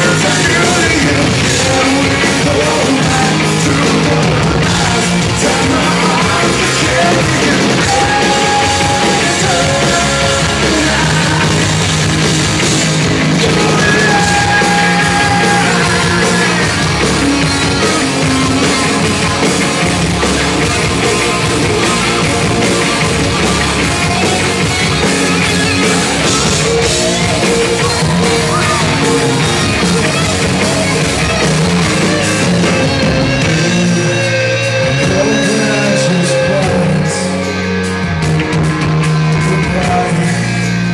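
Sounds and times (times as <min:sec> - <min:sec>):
man singing: 0:00.0 - 0:12.0, 0:13.3 - 0:18.6, 0:32.0 - 0:37.7, 0:39.3 - 0:40.9
electric guitars: 0:00.0 - 0:40.9.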